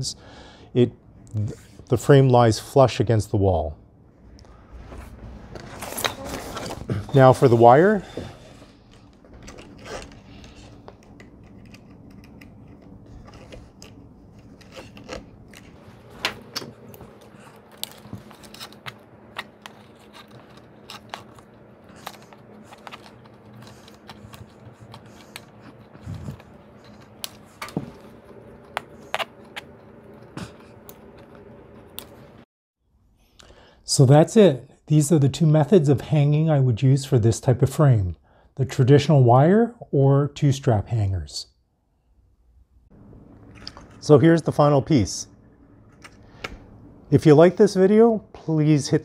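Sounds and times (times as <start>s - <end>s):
wire clicking and scraping: 8.9s - 32.2s
low hum: 42.2s - 47.6s.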